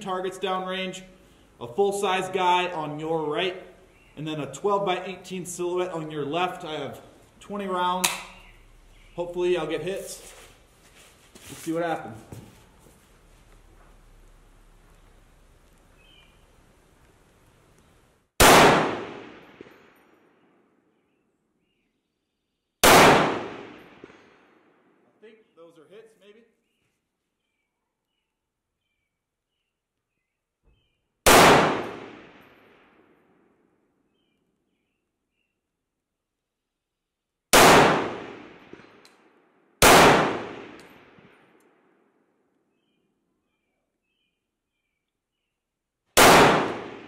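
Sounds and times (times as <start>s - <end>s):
rifle shots: 18.4s - 20.0s, 22.8s - 24.5s, 31.2s - 33.0s, 37.5s - 39.0s, 39.8s - 41.5s, 46.2s - 47.0s.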